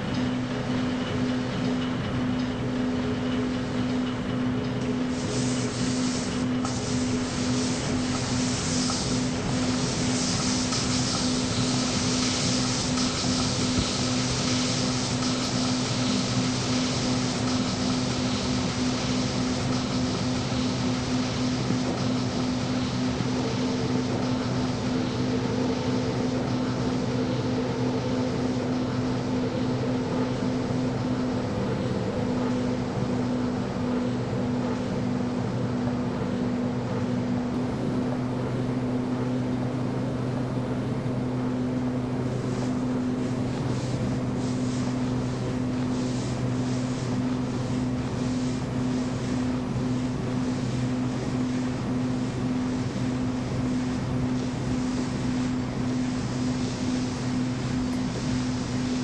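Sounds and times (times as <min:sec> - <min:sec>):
noisy hiss: 0:05.1 - 0:28.7, 0:41.8 - 0:59.0.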